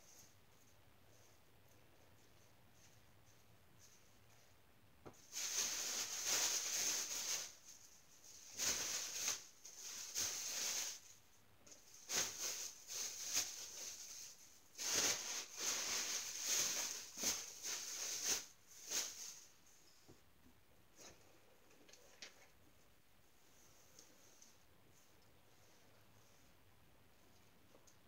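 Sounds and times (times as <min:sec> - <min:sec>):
fabric rustling: 0:11.9 - 0:19.9.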